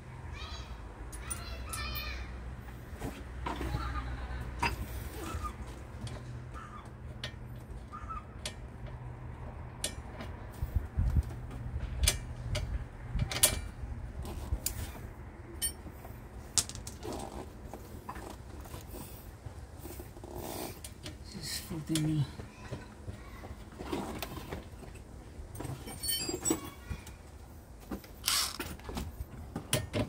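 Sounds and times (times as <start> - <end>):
tools clicking and clinking: 15.6 - 15.8, 28.2 - 28.7.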